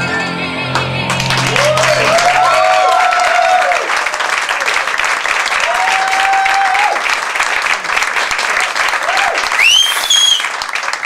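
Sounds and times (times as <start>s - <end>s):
audience applauding and cheering: 0.7s - 11.0s
high rising whoop: 1.4s - 4.0s, 5.6s - 7.0s, 9.0s - 10.6s
long held shout: 1.6s - 3.9s, 5.6s - 7.0s, 9.0s - 10.5s.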